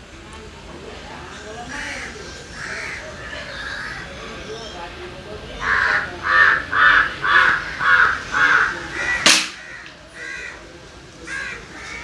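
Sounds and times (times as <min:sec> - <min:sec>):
crow cawing: 0:01.7 - 0:04.0, 0:05.6 - 0:10.6, 0:11.2 - 0:12.0
sharp crack: 0:09.1 - 0:10.0.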